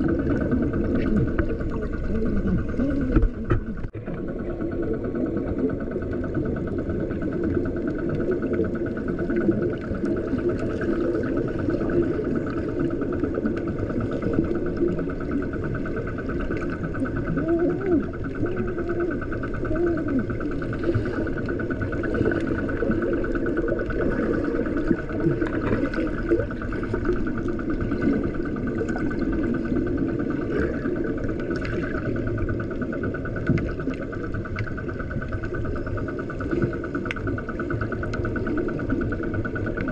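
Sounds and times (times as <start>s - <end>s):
muffled underwater motor drone: 0.0s - 39.9s.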